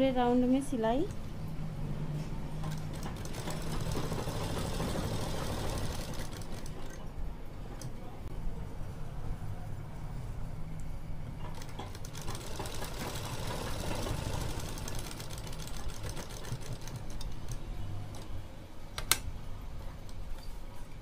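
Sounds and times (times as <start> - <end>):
sewing machine running: 2.6 - 7.0, 11.5 - 17.6.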